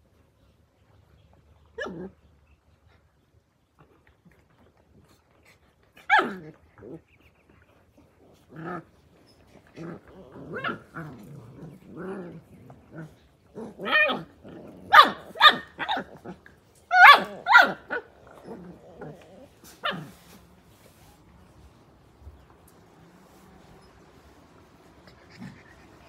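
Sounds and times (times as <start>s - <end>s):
puppies play-growling: 1.5s - 26.0s
sharp high puppy barks: 14.9s - 16.0s, 16.9s - 18.0s.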